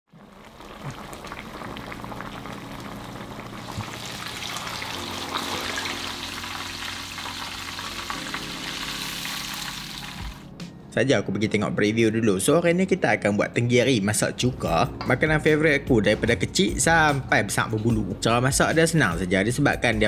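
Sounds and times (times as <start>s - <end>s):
fish frying in sizzling oil: 0.1s - 10.5s.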